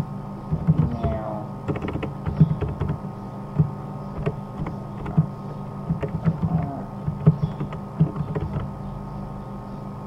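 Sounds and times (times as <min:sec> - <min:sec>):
steady low hum: 0:00.0 - 0:10.0
keyboard key clicks: 0:00.5 - 0:01.1, 0:01.7 - 0:03.0, 0:03.6 - 0:05.3, 0:05.9 - 0:08.7.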